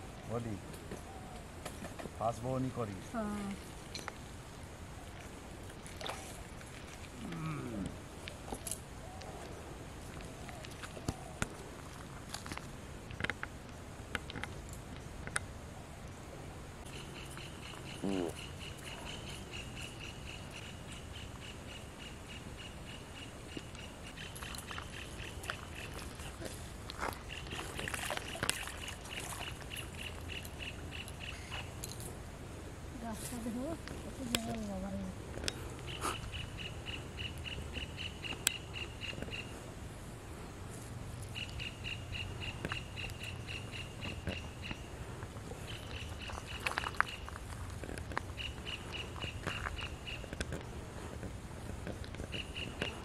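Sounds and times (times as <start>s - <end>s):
birds chirping: 16.8s - 32.1s, 33.0s - 39.6s, 41.2s - 50.5s, 52.2s - 53.0s.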